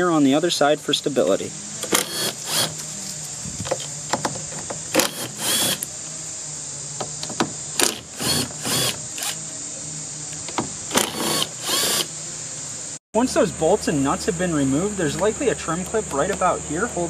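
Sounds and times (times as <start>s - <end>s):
cordless drill motor whine: 1.8s - 3.9s, 4.8s - 6.0s, 7.8s - 9.5s, 10.4s - 12.1s.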